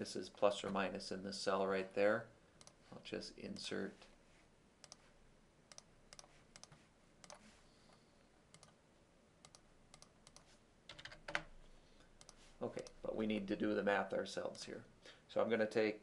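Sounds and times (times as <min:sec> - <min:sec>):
faint computer mouse clicks: 0:04.8 - 0:05.0, 0:05.7 - 0:07.4, 0:08.5 - 0:08.8, 0:12.2 - 0:13.0.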